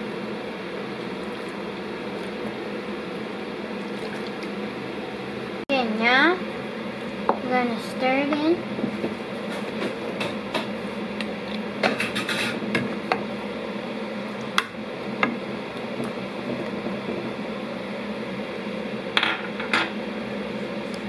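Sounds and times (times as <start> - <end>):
steady hum: 0.0 - 21.0
utensils clinking against pots: 11.8 - 12.8.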